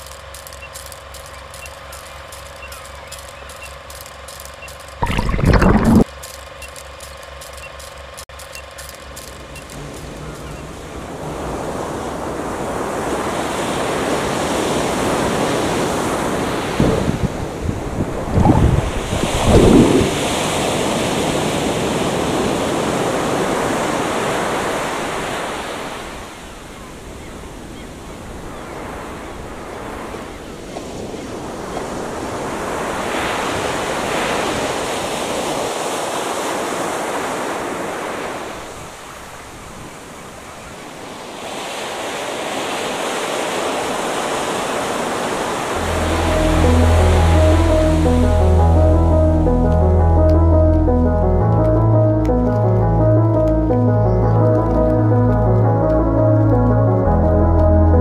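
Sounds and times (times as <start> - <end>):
ocean surf washing in: 9.0 - 58.0
wind gusts on microphone: 10.0 - 35.8.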